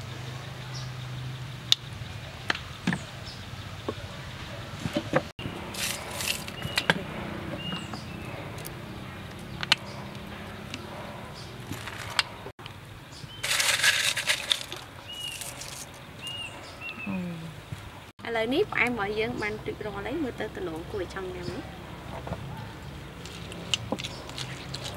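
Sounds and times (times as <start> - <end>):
crushed ice crunching in a glass: 13.4 - 16.0.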